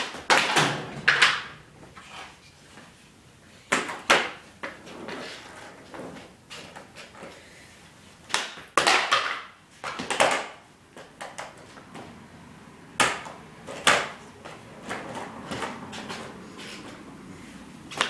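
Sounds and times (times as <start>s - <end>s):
skateboard clacking on concrete: 0.0s - 2.4s, 3.7s - 7.4s, 8.2s - 12.1s, 13.0s - 17.0s
skateboard wheels rattling: 3.7s - 7.4s, 8.3s - 12.1s, 13.0s - 17.0s.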